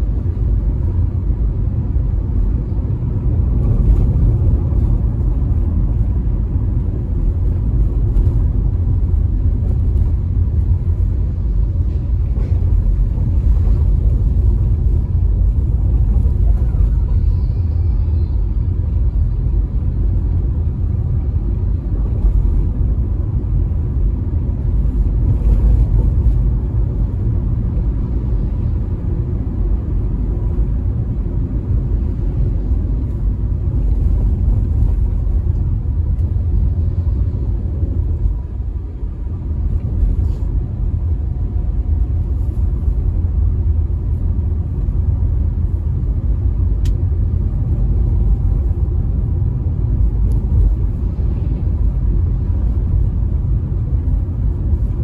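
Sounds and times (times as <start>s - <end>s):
car engine rumble: 0.0s - 55.0s
tyre noise on road: 0.0s - 55.0s.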